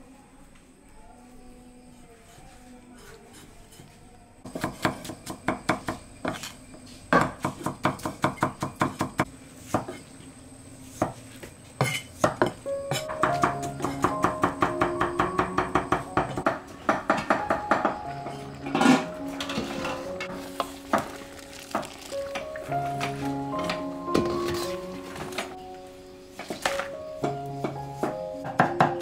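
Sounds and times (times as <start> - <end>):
cleaver chopping meat on wood: 7.2 - 9.9
background music: 12.6 - 29.0.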